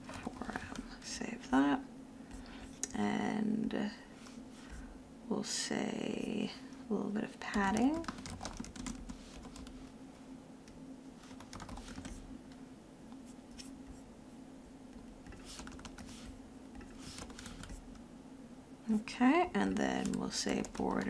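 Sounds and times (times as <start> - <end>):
faint low hum: 0.0 - 21.0
keyboard keys clicking: 7.5 - 9.7, 11.4 - 12.2.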